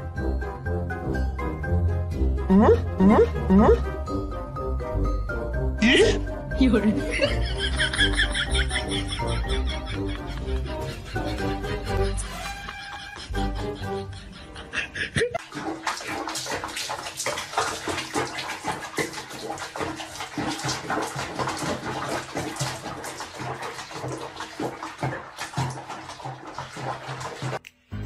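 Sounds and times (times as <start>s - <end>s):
bathwater splashing: 5.8s - 14.2s, 15.3s - 27.6s.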